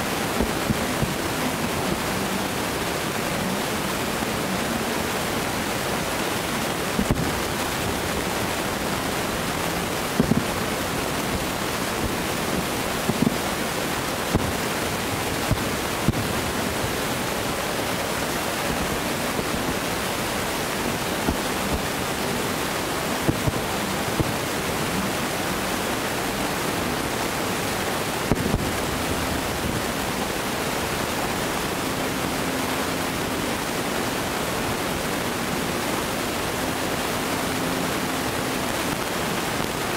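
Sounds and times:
steady rushing noise: 0.0s - 39.9s
distant fireworks thumping: 10.2s - 10.5s, 14.3s - 14.6s.

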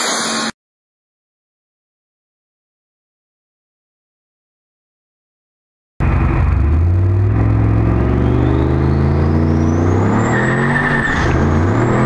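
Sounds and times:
engine accelerating hard: 6.0s - 12.0s.

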